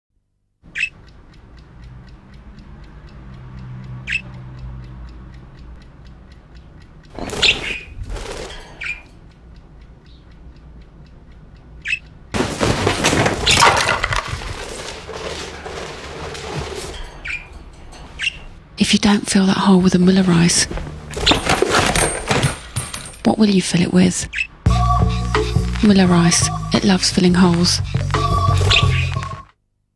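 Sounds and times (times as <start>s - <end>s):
fast even ticking: 0.6s - 12.4s, 24.4s - 29.5s
budgerigar chirping: 0.7s - 1.1s, 4.1s - 4.3s, 7.2s - 8.0s, 8.8s - 9.1s, 11.8s - 12.1s, 18.2s - 18.5s, 27.8s - 29.3s.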